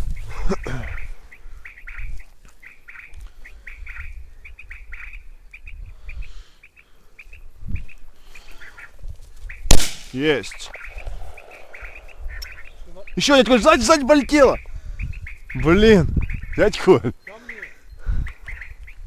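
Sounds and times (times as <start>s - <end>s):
brush and grass rustling: 7.3s - 14.1s
loud shotgun shot: 9.7s - 12.0s.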